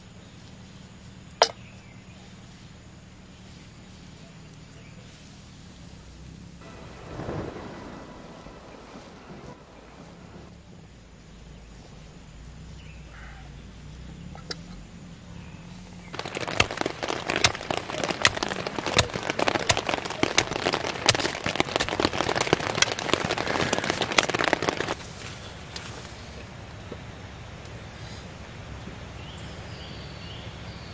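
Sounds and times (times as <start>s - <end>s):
heavy rain on tent: 4.4s - 12.6s, 15.2s - 27.0s
low rumble of thunder: 6.0s - 25.7s.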